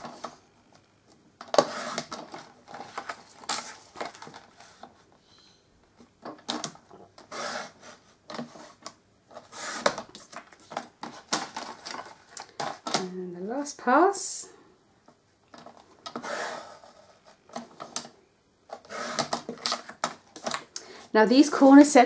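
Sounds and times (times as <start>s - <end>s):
card rustling and sliding: 1.5s - 5.1s, 7.2s - 12.9s, 16.1s - 18.0s, 18.7s - 20.6s.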